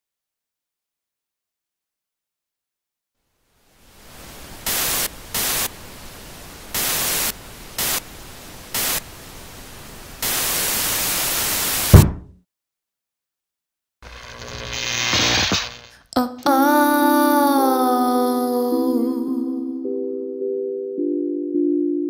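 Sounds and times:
television static hiss: 0:03.3 - 0:12.0, 0:14.1 - 0:16.1
loud bursts of static: 0:03.8 - 0:12.0, 0:14.0 - 0:16.1
fist banging television: 0:11.9 - 0:12.4.

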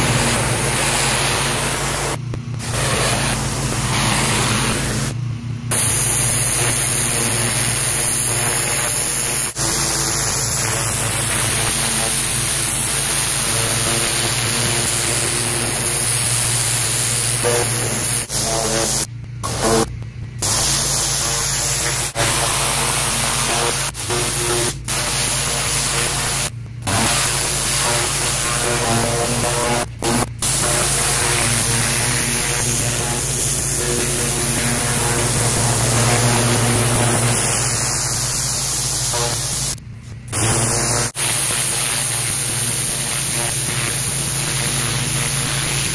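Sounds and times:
low hum: 0:00.0 - 0:12.1, 0:13.5 - 0:21.4
pressure washer water spray: 0:00.0 - 0:45.9.

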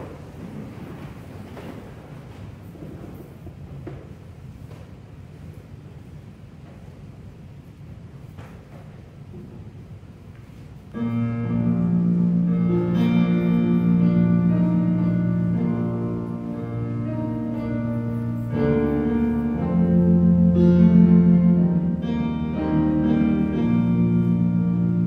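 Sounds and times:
keyboard playing hymn chords: 0:10.9 - 0:25.0.

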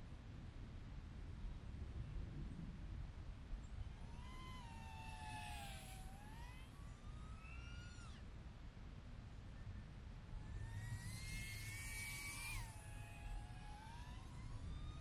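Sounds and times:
wind rumble on microphone: 0:00.0 - 0:08.2
drone motors whining: 0:03.7 - 0:08.5, 0:09.6 - 0:15.0.

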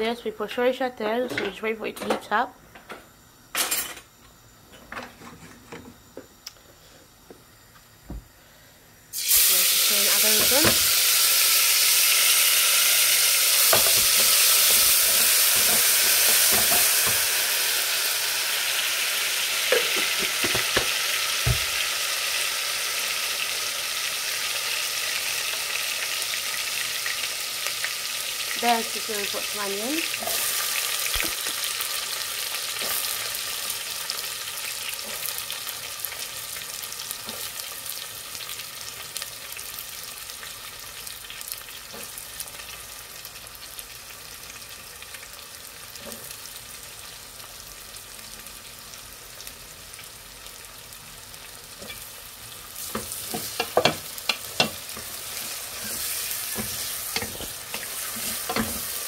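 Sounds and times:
onions sizzling in oil: 0:09.1 - 0:59.0
stirring knocks in pan: 0:52.9 - 0:55.1.

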